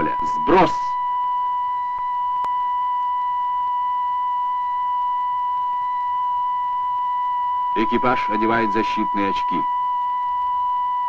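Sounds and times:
high-pitched electronic tone: 0:00.0 - 0:01.0, 0:07.7 - 0:09.7.

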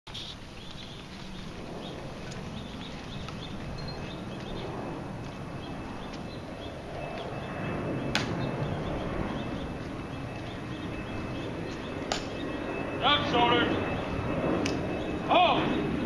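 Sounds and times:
sharp clicks: 0:12.0 - 0:12.4.

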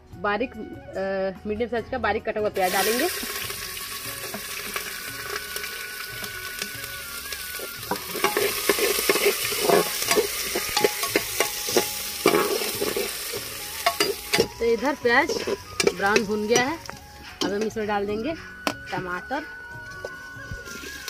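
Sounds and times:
onion sizzling in oil: 0:02.6 - 0:21.0
ladle scraping metal pot: 0:07.6 - 0:17.8.

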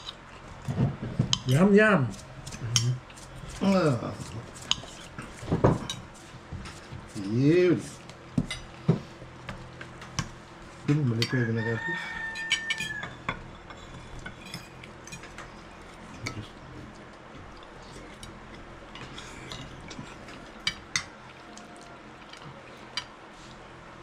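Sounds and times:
cutlery clinking on plates: 0:12.0 - 0:15.6.

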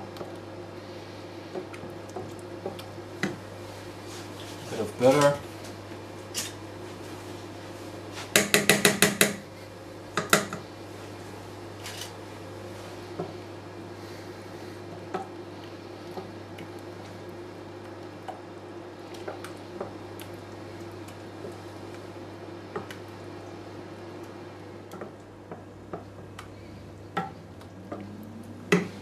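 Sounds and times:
steady low hum: 0:00.0 - 0:29.0
wooden spoon knocking in a pot: 0:08.4 - 0:09.4.

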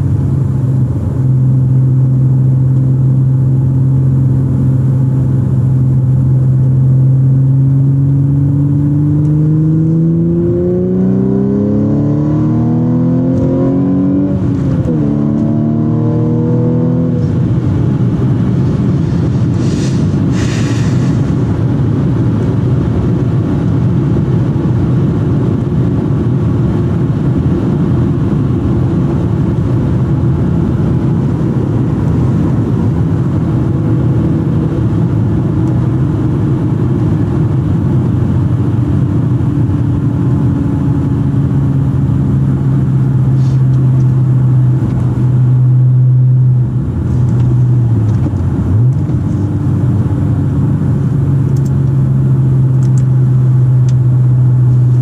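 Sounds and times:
car engine drone in cabin: 0:00.0 - 0:55.0
short hiss: 0:19.5 - 0:21.4, 0:43.4 - 0:43.6.

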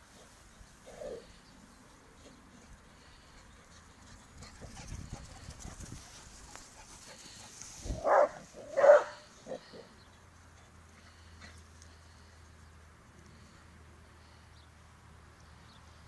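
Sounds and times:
dog barking: 0:08.0 - 0:09.2.

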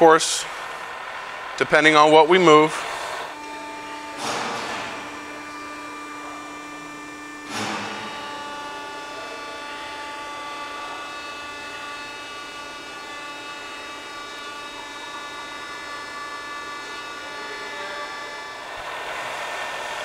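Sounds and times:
milling machine whine: 0:00.0 - 0:20.0
sudden motor burst: 0:02.8 - 0:09.1.

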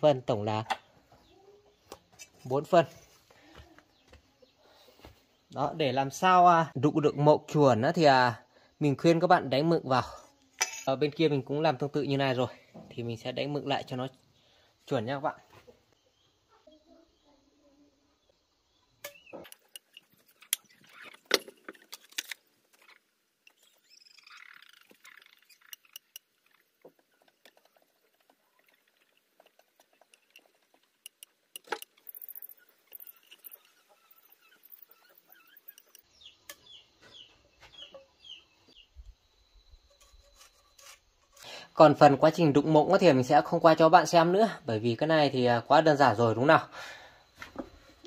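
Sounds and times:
tools clicking against wooden log: 0:29.6 - 0:32.2
faint high chirps: 0:32.0 - 0:40.8.

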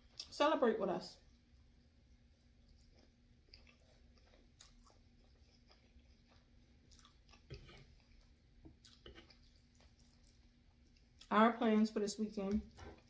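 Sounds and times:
person chewing: 0:01.3 - 0:11.3, 0:12.6 - 0:13.0.

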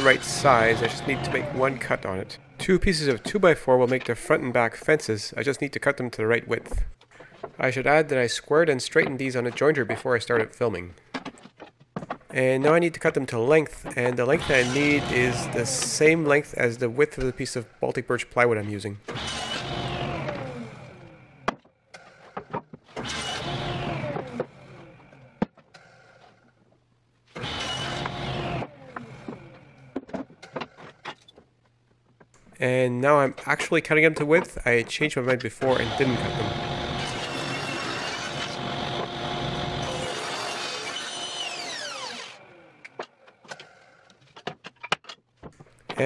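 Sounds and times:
table saw winding down: 0:00.0 - 0:02.0, 0:14.4 - 0:16.0, 0:35.7 - 0:42.4
wood pieces knocking: 0:09.0 - 0:12.4.

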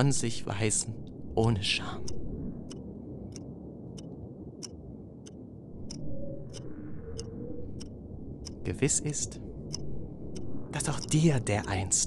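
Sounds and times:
faint hum: 0:00.0 - 0:12.0
steady low rumble: 0:00.0 - 0:12.0
regular ticking: 0:01.4 - 0:12.0.

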